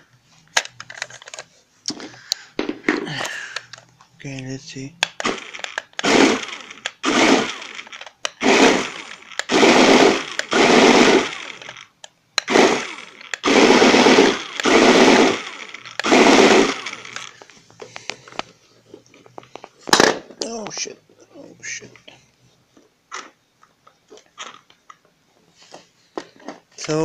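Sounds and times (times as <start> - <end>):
small electric motor whirring: 5.1 - 17.4.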